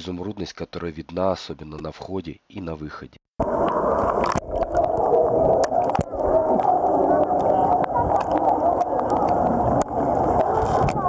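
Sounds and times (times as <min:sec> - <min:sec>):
water splashing: 0:03.4 - 0:11.0
muffled crowd chatter: 0:06.1 - 0:11.0.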